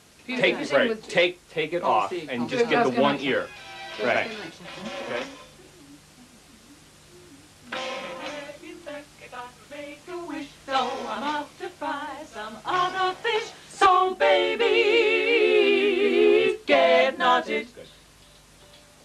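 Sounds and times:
women singing in harmony: 7.7s - 17.9s.

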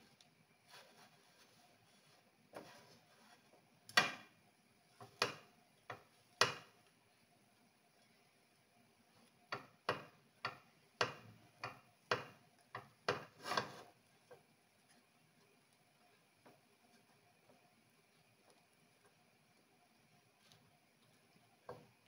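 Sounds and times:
fork scraping frying pan: 13.1s - 13.9s.

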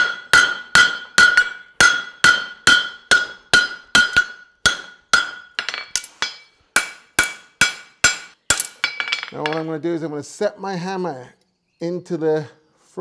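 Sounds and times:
hammer striking horseshoe on anvil: 0.0s - 9.7s.

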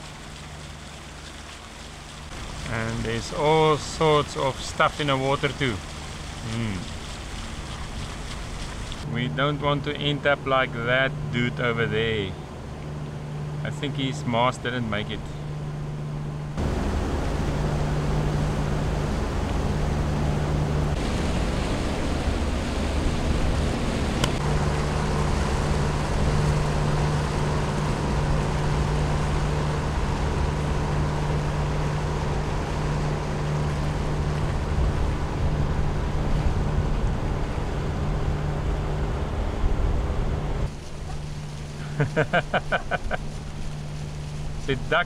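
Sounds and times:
water rushing past hull: 0.0s - 14.1s, 14.8s - 45.0s
diesel engines humming: 0.0s - 45.0s.

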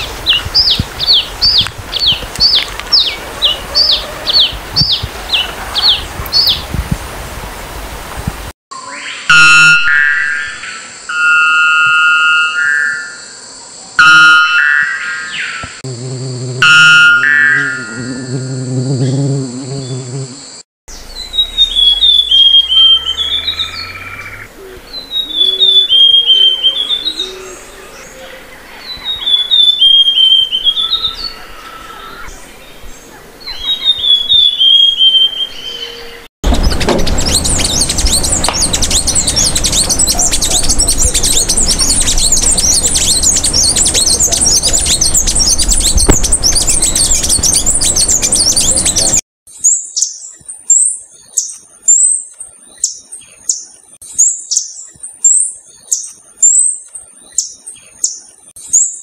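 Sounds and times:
finch singing: 0.0s - 6.6s, 20.9s - 52.2s
low rumble: 36.4s - 49.2s
high-pitched twittering: 36.5s - 49.2s.

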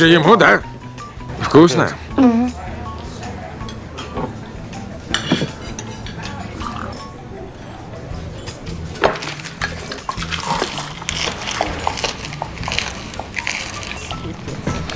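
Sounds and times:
soft background music: 0.0s - 14.9s
man slurping and squelching food: 9.9s - 14.2s.

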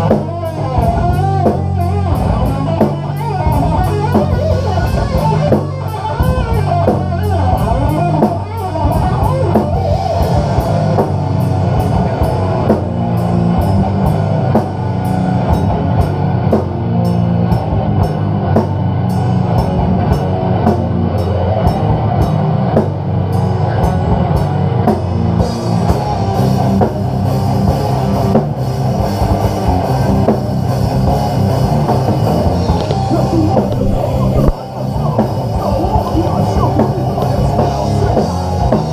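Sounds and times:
fast drum beat: 0.0s - 11.2s, 31.8s - 38.9s
bass guitar: 0.0s - 38.9s
distorted electric guitars: 0.0s - 38.9s.

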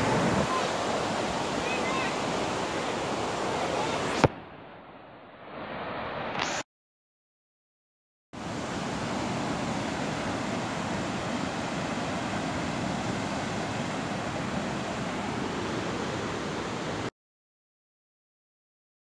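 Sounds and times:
waterfall rushing: 0.0s - 4.3s, 8.4s - 17.1s.

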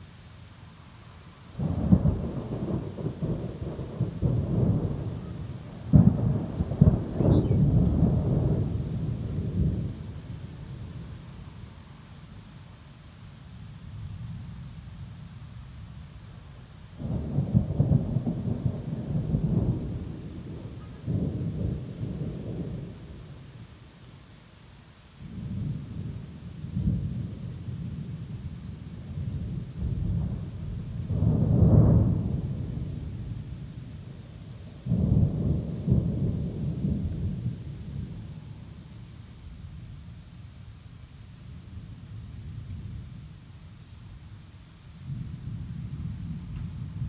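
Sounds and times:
thunder rumbling: 1.6s - 11.7s, 17.0s - 23.6s, 25.2s - 38.8s, 45.0s - 47.0s.

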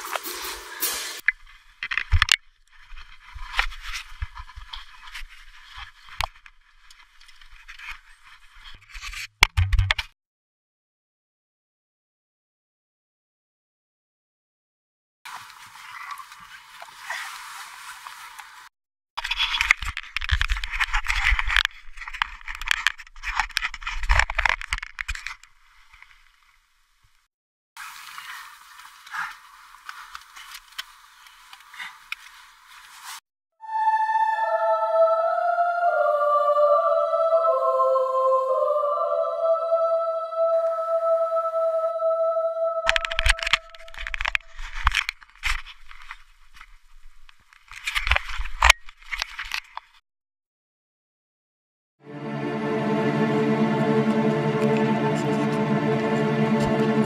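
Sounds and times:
rustling and scraping: 0.0s - 10.0s, 19.2s - 26.6s, 27.8s - 33.2s, 42.9s - 50.0s
clicks and low bumps: 1.2s - 10.1s
scraping and rustling: 1.4s - 9.3s.

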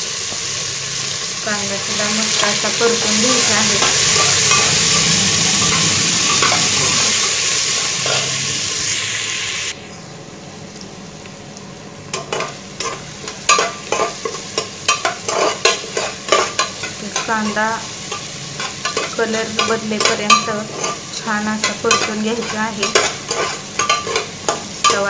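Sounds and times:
onion sizzling in hot oil: 0.0s - 25.0s
spatula scraping metal pan: 18.1s - 25.0s.

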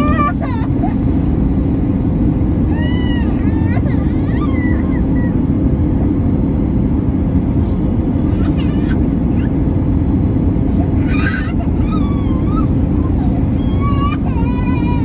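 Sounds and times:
airplane cabin roar: 0.0s - 15.0s
high wavering voice-like cry: 11.0s - 15.0s.

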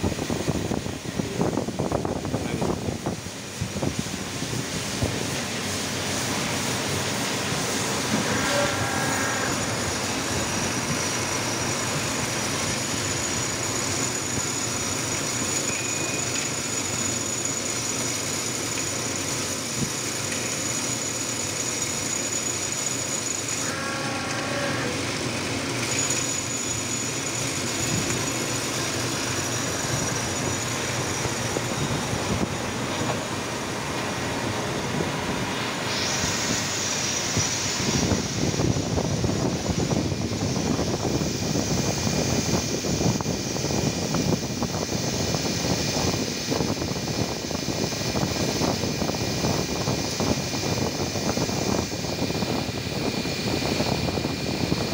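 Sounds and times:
coolant spraying hiss: 0.0s - 23.9s, 24.5s - 54.9s
lathe running: 0.0s - 54.9s
faint high whine: 7.4s - 18.1s, 21.7s - 54.9s
short beep: 15.7s - 16.4s.

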